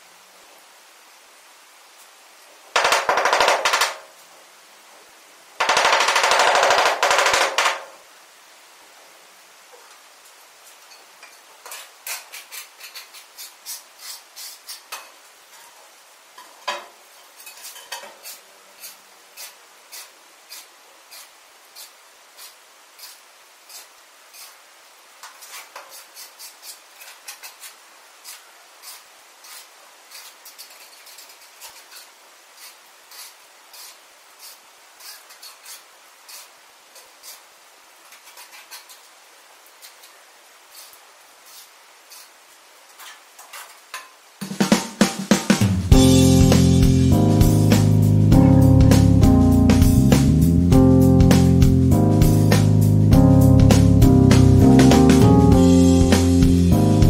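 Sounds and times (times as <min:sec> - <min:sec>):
trowel clinking and scraping: 0:10.9 - 0:15.8, 0:16.4 - 0:24.6, 0:25.2 - 0:37.4, 0:38.1 - 0:39.0.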